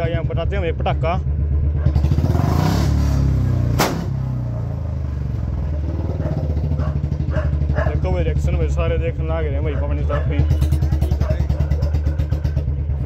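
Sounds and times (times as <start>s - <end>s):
motorcycle engine running: 0.0s - 13.0s
exhaust backfire crack: 1.8s - 8.7s.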